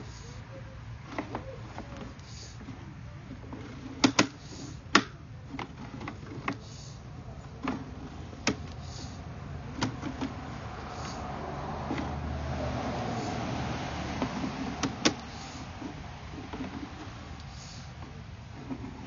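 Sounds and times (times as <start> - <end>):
low steady hum: 0.0 - 19.0
cable reel clicking and knocking: 3.4 - 6.8.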